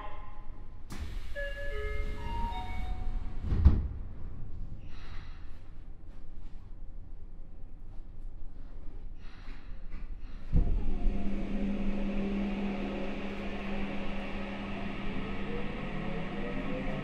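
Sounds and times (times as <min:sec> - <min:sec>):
low rumble: 0:00.0 - 0:09.0, 0:10.2 - 0:17.0
train motor hum rising in pitch: 0:10.6 - 0:17.0.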